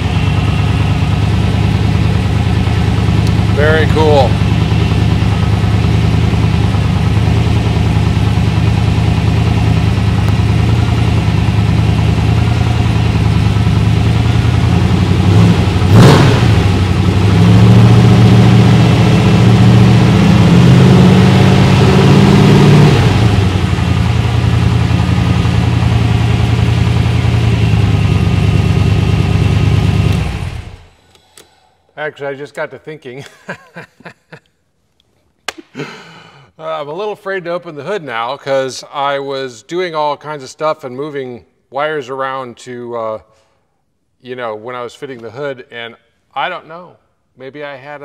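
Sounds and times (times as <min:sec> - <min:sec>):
car engine idling and revving: 0:00.0 - 0:31.0.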